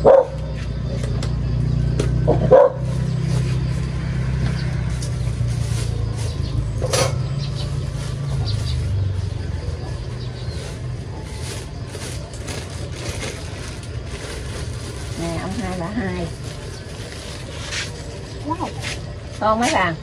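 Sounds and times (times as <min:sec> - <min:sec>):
dog barking: 0:00.0 - 0:00.4, 0:02.3 - 0:02.9
low motor hum: 0:00.0 - 0:20.0
plastic bags rustling: 0:02.9 - 0:06.8, 0:07.6 - 0:19.3.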